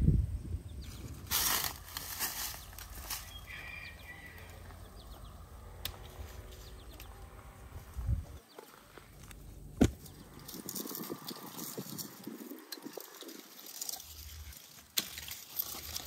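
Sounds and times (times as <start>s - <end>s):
leaves rustling: 0.8s - 16.0s
faint bird chirps: 2.5s - 5.4s
pruning shears snipping: 5.8s - 7.1s, 13.9s - 16.0s.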